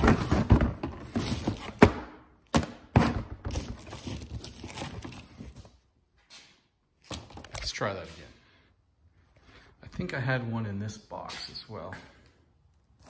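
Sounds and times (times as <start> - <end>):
parts rummaged in a box: 0.0 - 1.9, 2.9 - 5.7.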